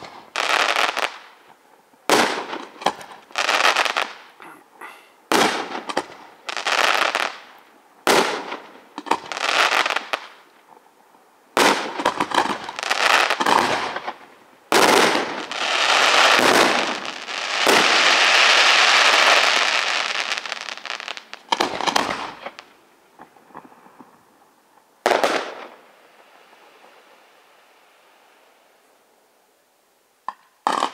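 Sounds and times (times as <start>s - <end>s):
firework sparks crackling: 0.0s - 4.4s, 5.3s - 10.6s, 11.5s - 22.8s, 25.0s - 28.7s.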